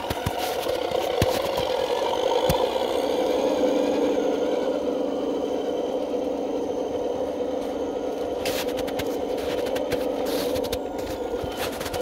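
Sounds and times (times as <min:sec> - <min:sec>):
toy truck drive hum: 0:00.0 - 0:12.0
crackling noise: 0:07.6 - 0:12.0.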